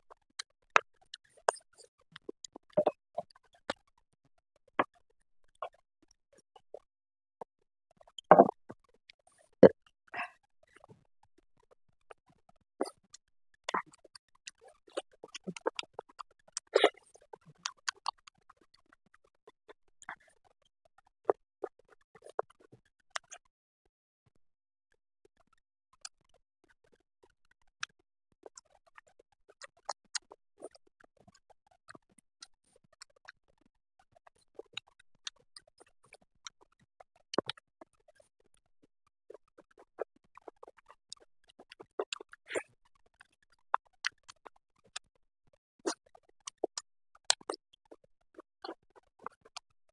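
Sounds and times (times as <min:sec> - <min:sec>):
chewing with wet mouth clicks: 0:00.4 - 0:03.8, 0:13.7 - 0:19.2, 0:21.3 - 0:23.4, 0:28.5 - 0:30.8, 0:37.3 - 0:38.3, 0:39.3 - 0:45.1, 0:45.8 - 0:49.6.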